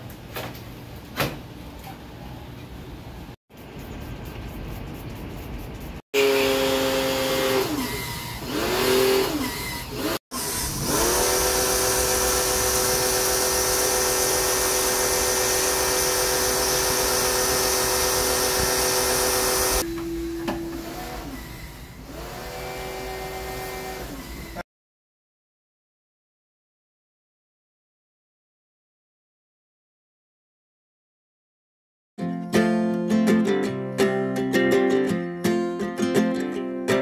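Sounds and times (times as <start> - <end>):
pressure washer motor whine: 6.2 - 24.6.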